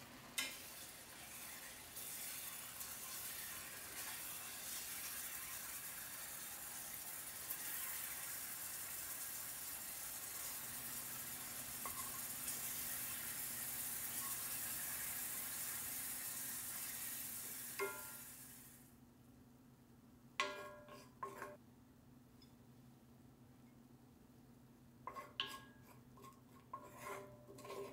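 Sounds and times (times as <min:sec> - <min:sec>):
spices sizzling in a skillet: 0:00.0 - 0:18.9
wooden spoon stirring: 0:25.1 - 0:27.9.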